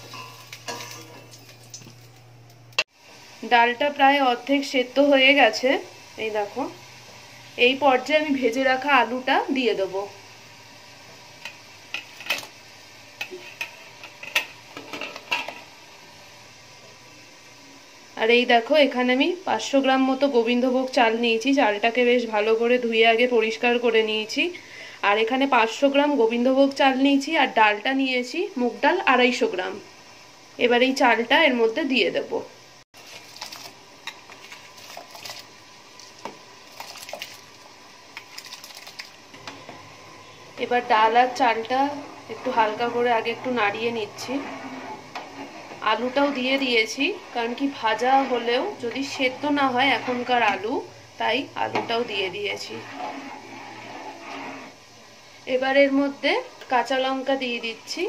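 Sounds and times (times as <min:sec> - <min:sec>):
metal spoon clinking on pot rim: 0:00.1 - 0:01.4
rice grains pattering into pot: 0:33.0 - 0:39.4
hand scraping steel bowl: 0:41.1 - 0:50.8, 0:51.6 - 0:54.8.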